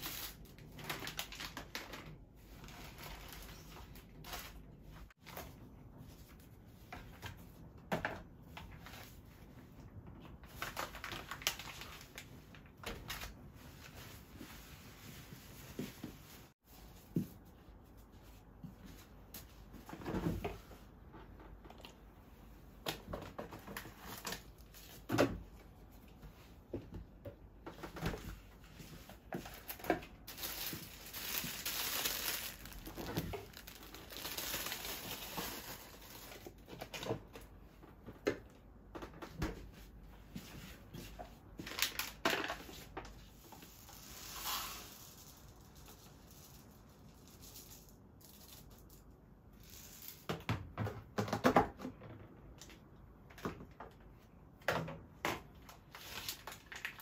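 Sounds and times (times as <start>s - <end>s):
plastic wrapping crinkling: 0.0s - 4.6s, 10.4s - 14.0s, 29.4s - 36.9s, 55.9s - 57.0s.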